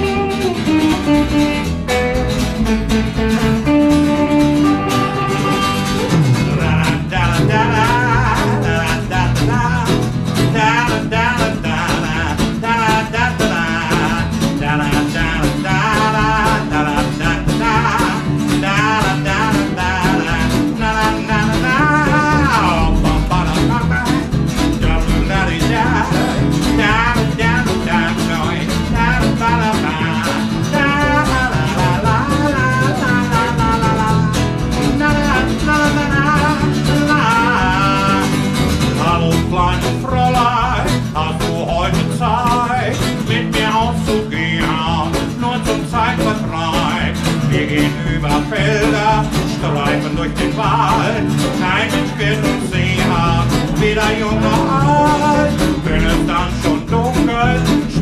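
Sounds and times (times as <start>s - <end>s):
lead guitar solo bending notes: 0.0s - 8.9s
bass: 0.0s - 58.0s
blues band playing: 0.0s - 58.0s.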